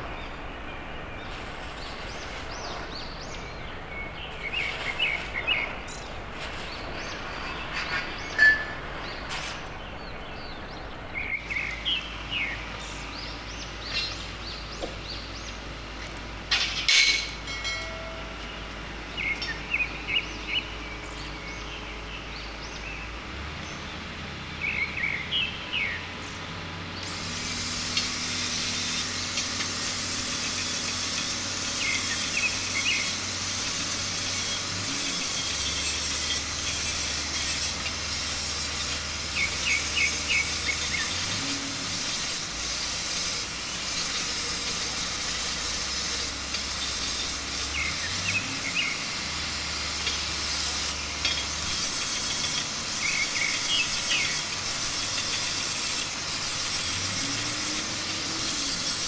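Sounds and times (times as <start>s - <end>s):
birds chirping: 0.0s - 59.0s
angle grinder grinding metal: 27.0s - 59.0s.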